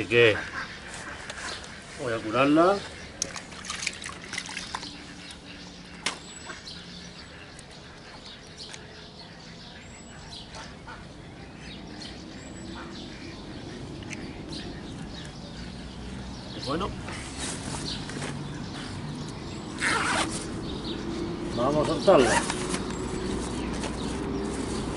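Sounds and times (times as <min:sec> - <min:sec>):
birds chirping faintly: 0:00.0 - 0:24.9
water splashing from bucket: 0:03.2 - 0:05.0.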